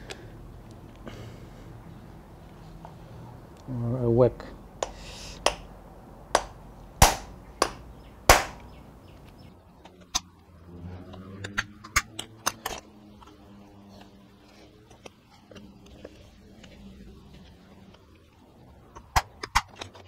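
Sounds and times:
hammer whacking steel punch: 0:06.4 - 0:08.6.

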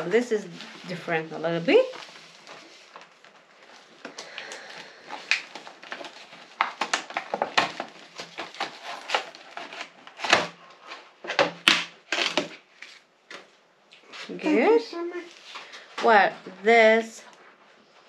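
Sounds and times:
packaging crinkling and clicking: 0:02.4 - 0:13.5.

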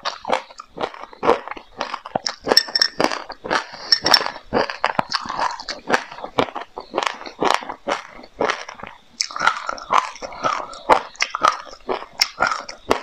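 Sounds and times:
crisp chewing crunches: 0:00.0 - 0:13.0
metal spoon clinking glass bowl: 0:02.4 - 0:03.1, 0:03.9 - 0:04.4.

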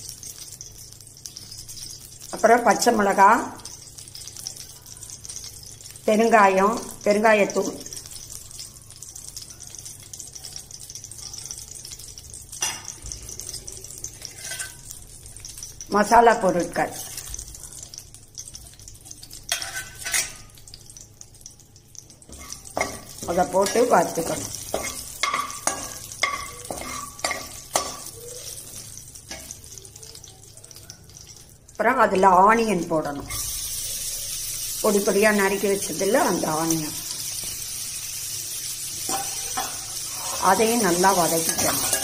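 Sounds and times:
oil sizzling: 0:00.0 - 0:42.0
metal spoon knocking on pan: 0:22.3 - 0:28.1.

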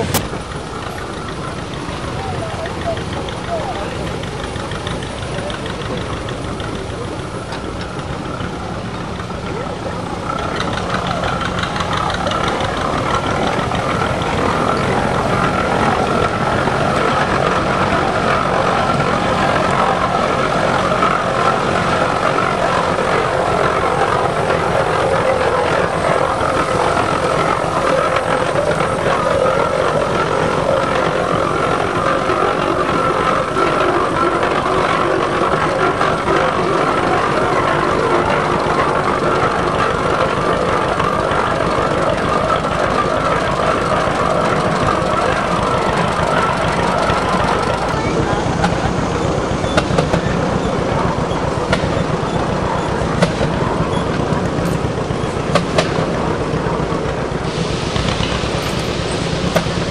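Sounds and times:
steam engine mechanical clatter: 0:00.0 - 0:59.9.

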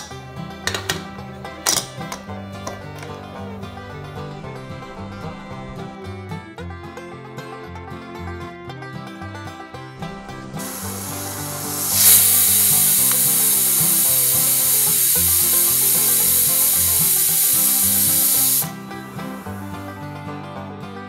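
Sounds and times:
pressure cooker steam hissing: 0:10.6 - 0:19.9.

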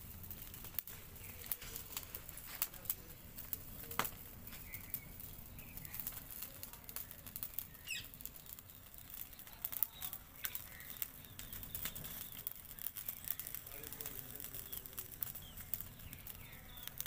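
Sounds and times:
fire crackling and popping: 0:00.0 - 0:17.0
bird chirping: 0:04.5 - 0:06.2, 0:07.0 - 0:17.0.

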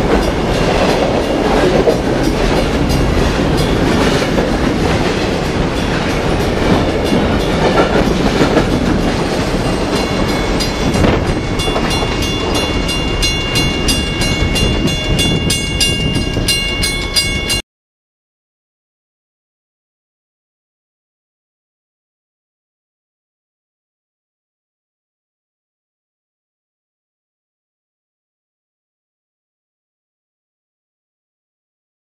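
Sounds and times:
train rumble and wheel clatter: 0:00.0 - 0:17.6.

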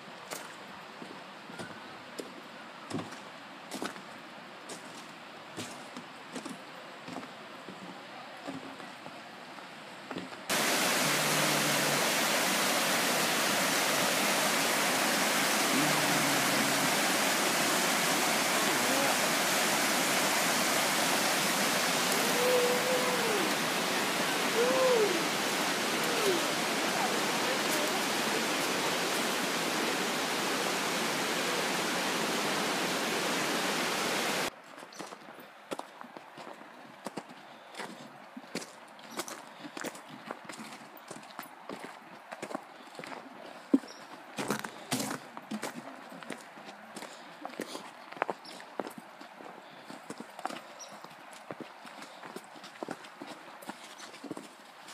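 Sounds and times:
water rushing over rocks: 0:10.5 - 0:34.5.

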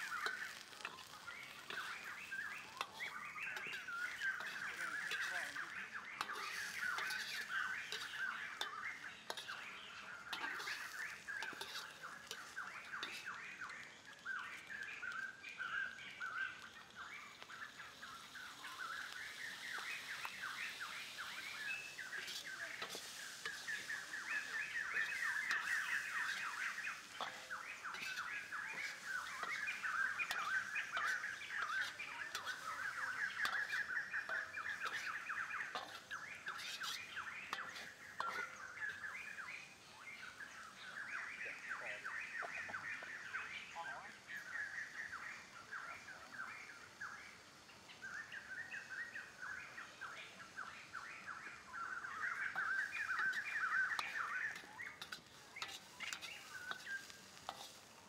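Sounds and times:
metal spatula scraping wok: 0:00.0 - 0:13.6, 0:17.9 - 0:39.4, 0:52.4 - 0:58.0
rapid chirping calls: 0:00.0 - 0:58.0.

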